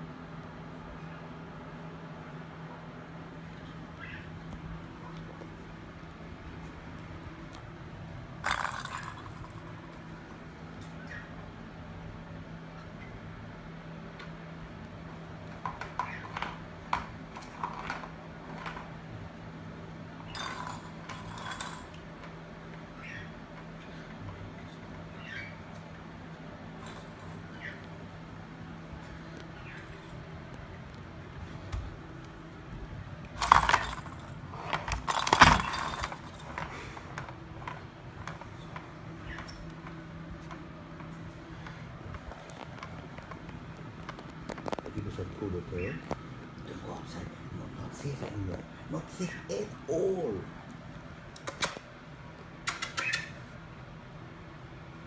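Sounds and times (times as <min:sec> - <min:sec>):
high jingling ring: 0:08.4 - 0:10.3, 0:20.3 - 0:22.2, 0:26.8 - 0:28.1, 0:33.4 - 0:36.7
ball rattling around plastic track: 0:33.4 - 0:38.6.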